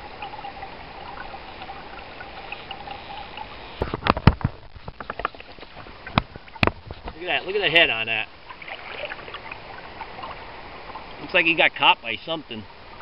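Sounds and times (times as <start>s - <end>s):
river water running: 0.0s - 13.0s
sharp knocks and splashes: 3.8s - 7.2s, 8.4s - 11.2s.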